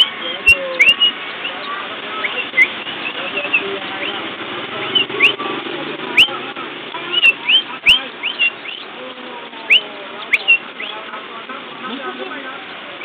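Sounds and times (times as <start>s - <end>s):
canary chicks cheeping: 0.0s - 11.2s, 11.8s - 13.0s
low background murmur: 0.0s - 13.0s.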